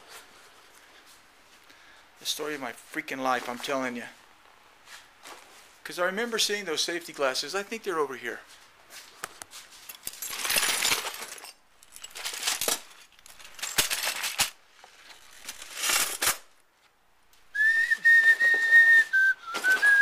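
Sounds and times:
rummaging in plastic bins: 0:08.9 - 0:16.5, 0:17.8 - 0:20.0
person whistling high note: 0:17.5 - 0:20.0.

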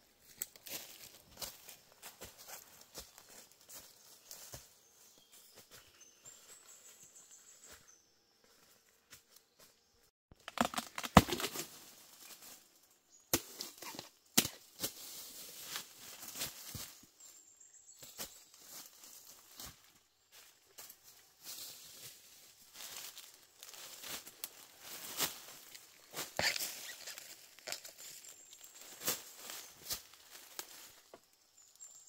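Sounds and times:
dry leaves crackling underfoot: 0:00.2 - 0:04.6, 0:18.0 - 0:31.2
twigs snapping: 0:25.2 - 0:28.2.

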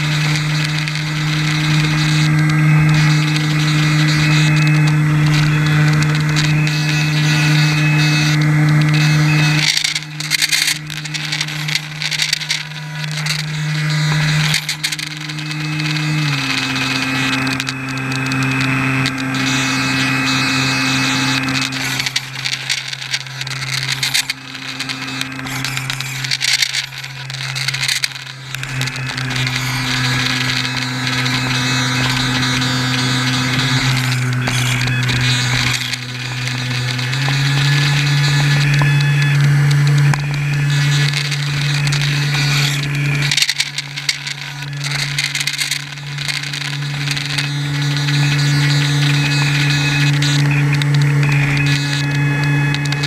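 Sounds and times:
electric motor and propeller droning: 0:00.0 - 0:53.0.

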